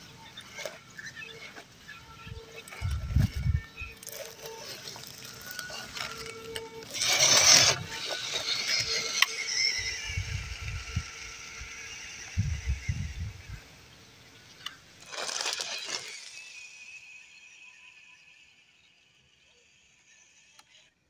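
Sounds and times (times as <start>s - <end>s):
small electric motor running: 0.0s - 21.0s
tyres crunching over dry leaves: 0.2s - 9.8s, 15.0s - 16.6s.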